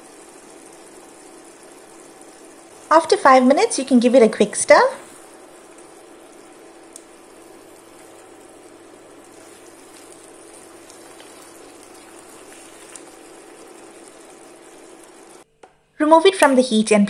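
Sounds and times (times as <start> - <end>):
sauce simmering and bubbling: 0.0 - 15.4
wooden spoon stirring: 5.1 - 15.4.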